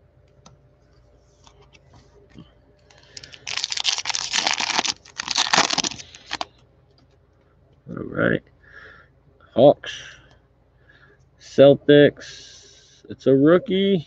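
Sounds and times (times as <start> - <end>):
foil wrapper crinkling: 3.0 - 6.5.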